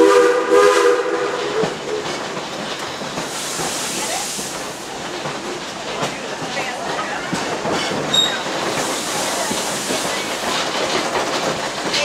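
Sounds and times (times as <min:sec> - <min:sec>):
steam whistle: 0:00.0 - 0:01.7
high steam hiss: 0:00.0 - 0:12.0
train car clattering over track: 0:01.4 - 0:12.0.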